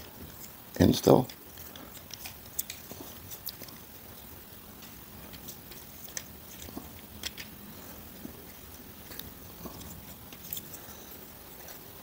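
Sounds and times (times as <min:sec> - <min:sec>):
low hiss: 0:00.0 - 0:12.0
plastic toy parts clicking: 0:05.3 - 0:07.5.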